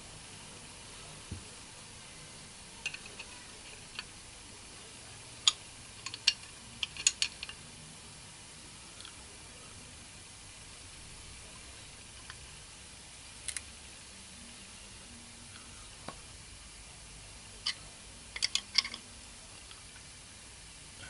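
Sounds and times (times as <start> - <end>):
steady background hiss: 0.0 - 21.0
spanner clicking on metal: 5.5 - 7.6, 18.4 - 19.0.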